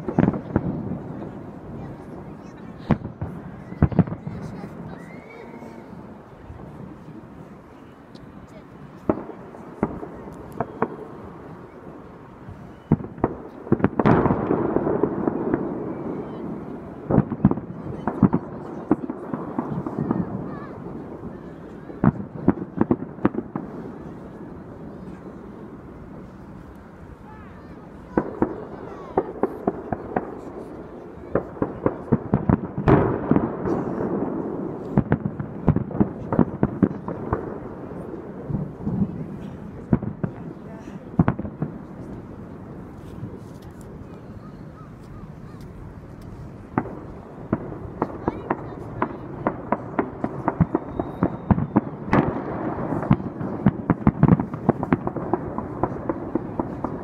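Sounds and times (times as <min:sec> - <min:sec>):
fireworks bangs: 0:00.0 - 0:57.0
fireworks rumble: 0:00.0 - 0:57.0.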